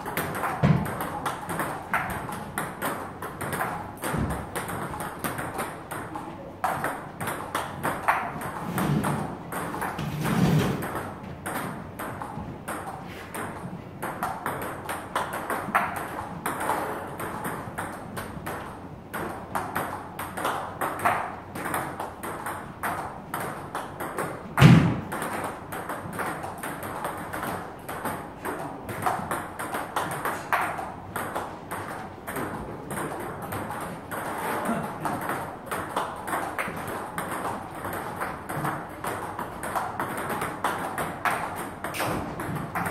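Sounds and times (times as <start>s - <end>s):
ping-pong ball clicking: 0.0s - 10.0s, 10.8s - 42.9s
loud thud: 24.6s - 25.0s.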